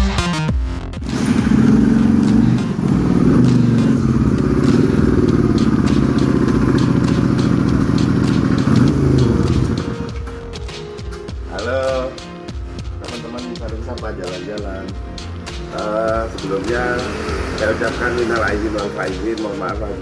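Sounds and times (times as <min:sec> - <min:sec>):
motorcycle engine running: 0:01.0 - 0:10.8, 0:15.9 - 0:19.3.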